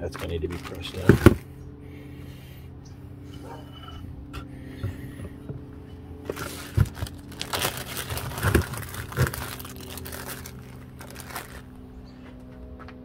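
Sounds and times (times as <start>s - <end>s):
steady low hum: 0.0s - 13.0s
handling rustling: 0.2s - 1.4s, 6.2s - 11.7s.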